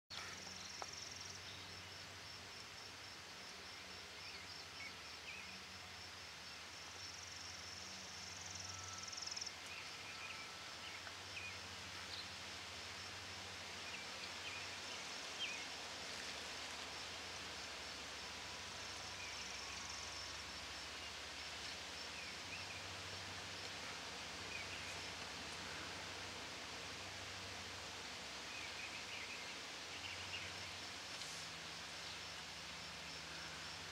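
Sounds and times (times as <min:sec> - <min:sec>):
faint hiss: 0:00.1 - 0:33.9
insect pulsed trill: 0:04.5 - 0:14.7, 0:17.6 - 0:26.2.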